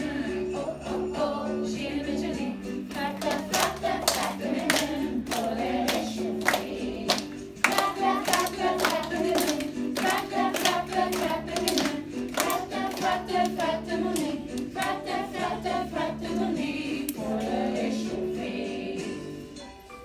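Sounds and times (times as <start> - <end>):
children singing: 0.0 - 19.3
musical accompaniment: 0.0 - 20.0
hands clapping: 2.9 - 15.2.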